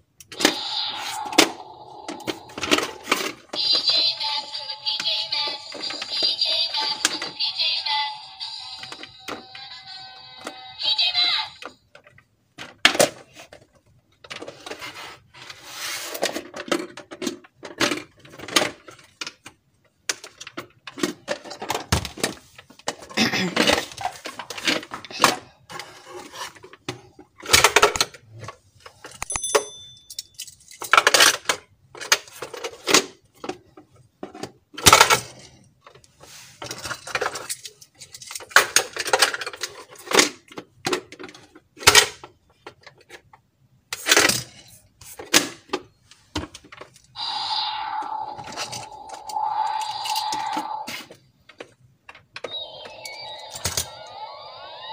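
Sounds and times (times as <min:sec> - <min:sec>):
plastic toy parts clattering: 0:11.9 - 0:14.9, 0:16.0 - 0:29.3, 0:30.0 - 0:36.0, 0:36.6 - 0:43.4.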